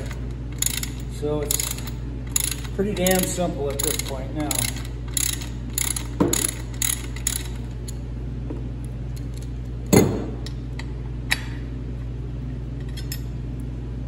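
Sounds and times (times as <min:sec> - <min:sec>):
ratchet clicks: 0:00.0 - 0:08.0
steady low hum: 0:00.0 - 0:14.0
loud metal clunk: 0:09.9 - 0:10.4.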